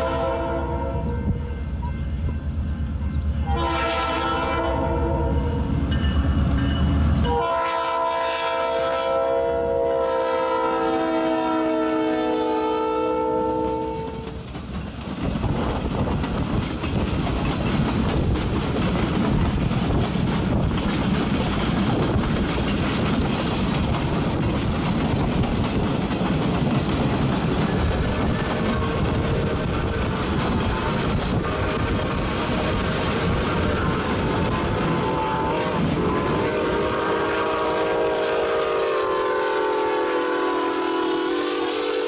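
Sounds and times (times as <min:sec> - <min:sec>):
locomotive air horn blast: 0:00.0 - 0:01.8, 0:03.4 - 0:05.6, 0:07.2 - 0:14.3, 0:33.4 - 0:42.0
locomotive engine rumbling: 0:14.0 - 0:42.0
train wheels clacking on rails: 0:14.0 - 0:42.0.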